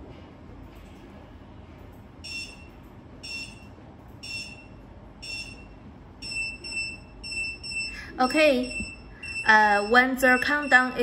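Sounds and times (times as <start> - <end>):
countdown clock beeping: 2.2 - 11.0.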